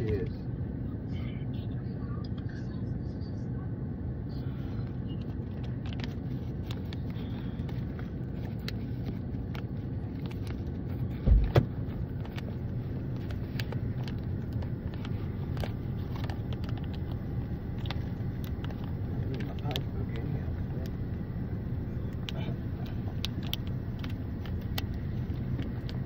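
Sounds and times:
car engine idling: 0:04.2 - 0:26.0
sharp double thump: 0:11.2 - 0:11.7.

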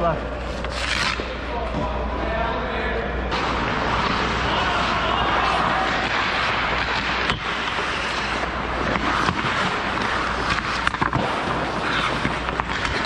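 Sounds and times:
skates scraping ice: 0:00.2 - 0:01.8, 0:03.3 - 0:13.0
stick and puck clicks: 0:05.5 - 0:13.0.

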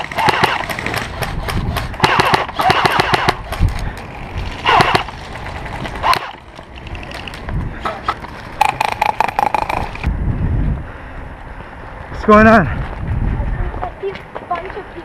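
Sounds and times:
airsoft guns firing bursts: 0:00.0 - 0:03.6, 0:04.6 - 0:05.1
footsteps on gravel: 0:03.5 - 0:10.0.

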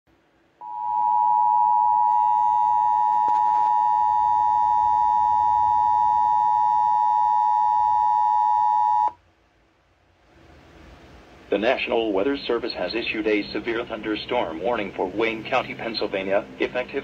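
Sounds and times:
two-tone alarm tone: 0:00.6 - 0:09.1.

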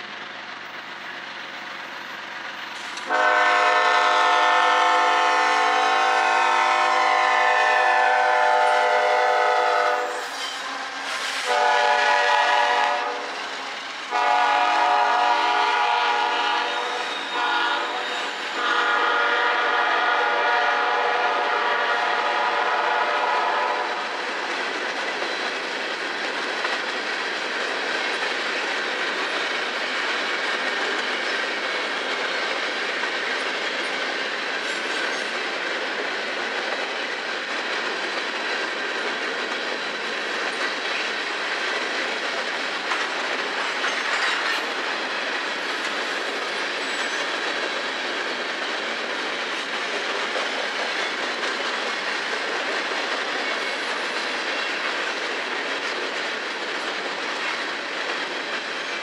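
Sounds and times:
locomotive air horn blasts: 0:03.1 - 0:10.3, 0:11.5 - 0:13.2, 0:14.1 - 0:23.9.

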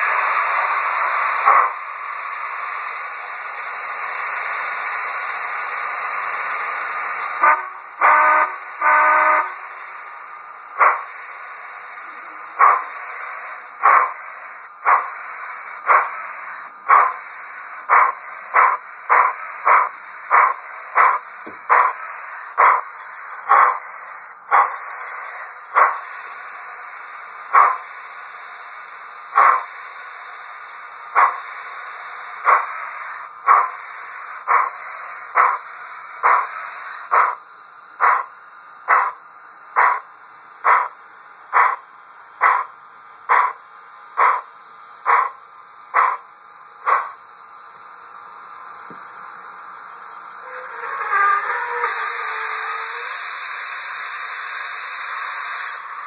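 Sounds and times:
model train steam hiss: 0:00.0 - 0:56.0
steam exhaust chuffs: 0:00.0 - 0:56.0
train whistle toots: 0:07.4 - 0:09.7.

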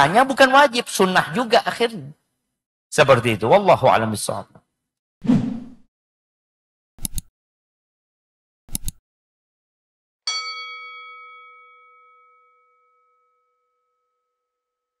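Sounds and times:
bell ding: 0:10.3 - 0:14.5.

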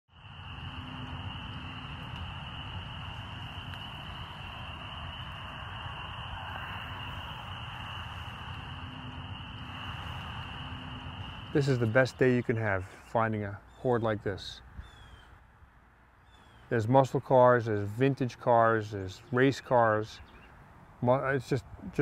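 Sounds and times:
low rumble: 0:00.1 - 0:12.4
chorus of calling frogs: 0:00.2 - 0:12.8.

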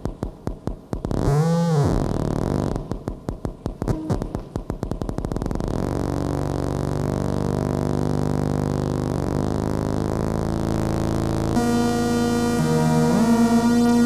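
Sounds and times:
pulsing synthesizer drone: 0:03.8 - 0:14.0.

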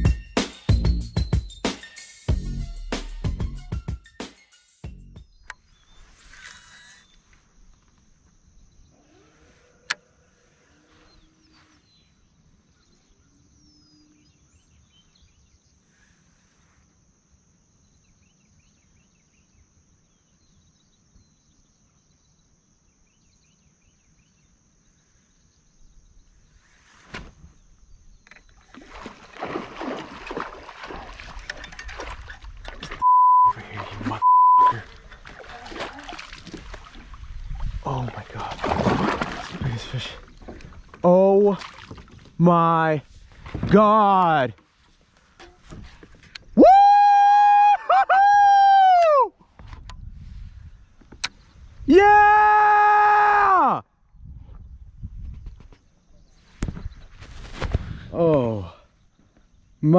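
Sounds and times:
water splashing around kayak: 0:28.4 - 0:42.5, 0:43.1 - 0:43.9
censor bleeps: 0:33.0 - 0:34.9.

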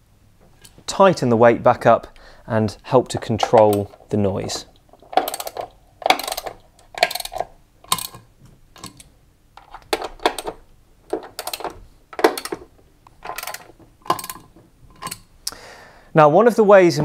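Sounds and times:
metal washers and screws clinking: 0:03.0 - 0:15.3.

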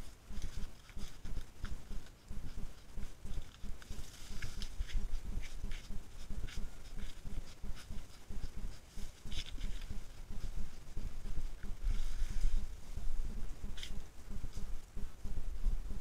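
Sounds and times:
claws scratching tree bark: 0:00.0 - 0:12.7, 0:13.3 - 0:14.8
low thumping: 0:01.8 - 0:16.0.

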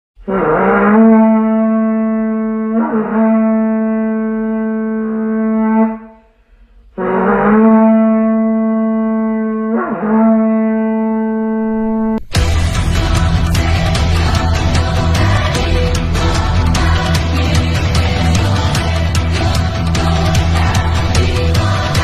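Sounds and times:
long steady horn blasts: 0:00.2 - 0:22.0
loud full-band music: 0:12.3 - 0:22.0.

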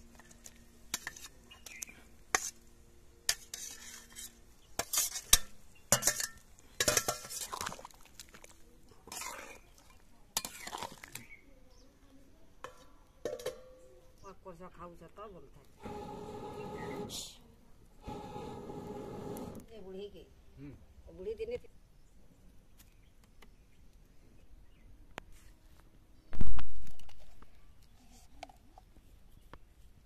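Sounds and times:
metal utensils clinking on cookware: 0:03.3 - 0:07.6, 0:12.7 - 0:13.8.

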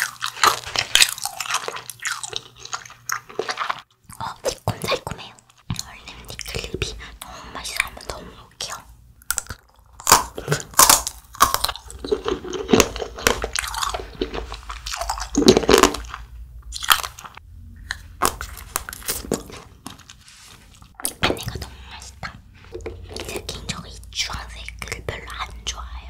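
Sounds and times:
crunching frozen candy: 0:00.0 - 0:06.7, 0:07.6 - 0:21.0.

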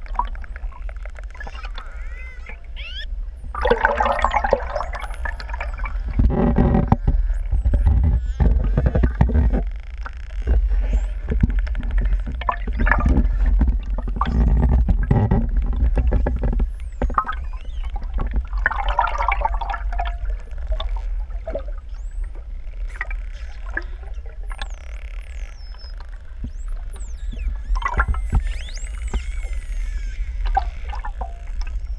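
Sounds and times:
dolphin clicks: 0:00.0 - 0:03.2
low underwater rumble: 0:00.0 - 0:31.9
dolphin whistles: 0:01.3 - 0:03.2, 0:16.8 - 0:18.0, 0:23.4 - 0:31.9.

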